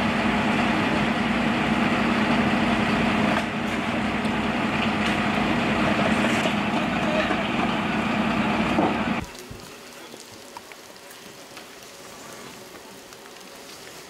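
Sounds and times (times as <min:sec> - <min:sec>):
diesel engine idling: 0:00.0 - 0:09.2.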